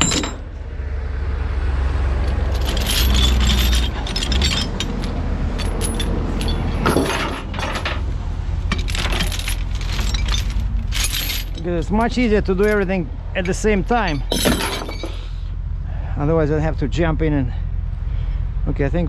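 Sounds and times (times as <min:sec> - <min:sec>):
metal chains clinking: 0:00.0 - 0:00.5, 0:02.2 - 0:15.4
steady low rumble: 0:00.0 - 0:19.0.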